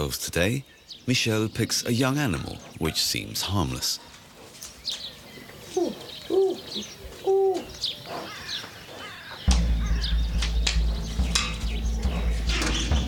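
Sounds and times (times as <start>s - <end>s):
birds chirping: 0.0s - 13.0s
dove cooing: 5.6s - 13.0s.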